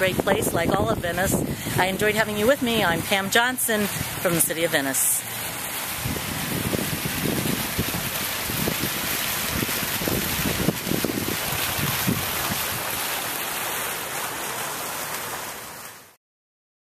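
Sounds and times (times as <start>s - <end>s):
wind buffeting microphone: 0.0s - 3.2s, 5.9s - 13.1s
fountain splashing into pool: 0.0s - 16.2s.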